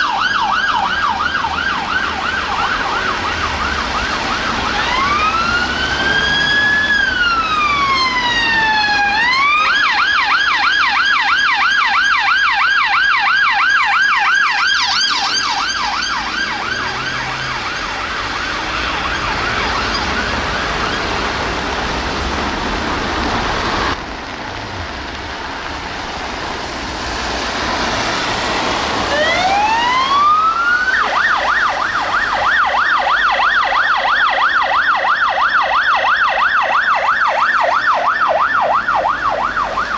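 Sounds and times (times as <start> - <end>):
police siren wailing and yelping: 0.0 - 21.7, 28.7 - 39.9.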